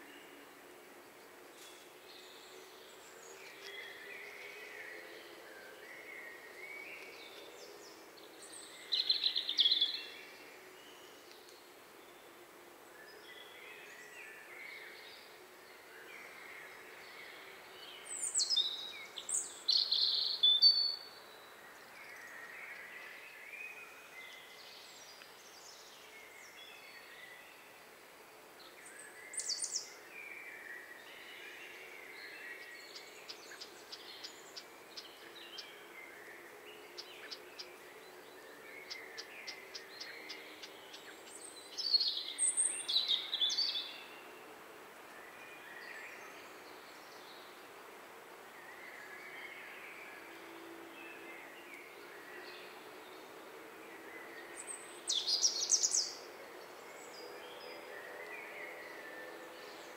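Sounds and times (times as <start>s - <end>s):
steady background hiss: 0.0s - 59.9s
birds chirping: 48.4s - 59.9s.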